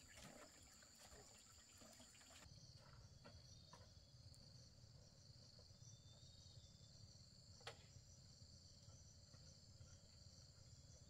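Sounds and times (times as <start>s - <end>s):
insects trilling: 0.0s - 7.2s.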